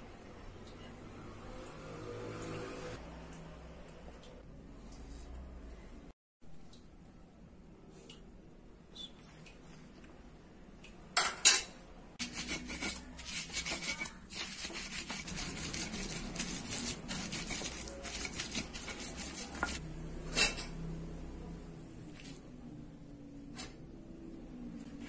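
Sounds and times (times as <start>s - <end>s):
stone grinding on stone: 12.2s - 19.8s.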